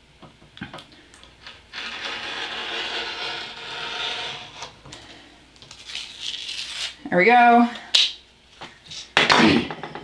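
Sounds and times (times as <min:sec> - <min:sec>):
paper cutter blade scraping: 0:01.7 - 0:04.7.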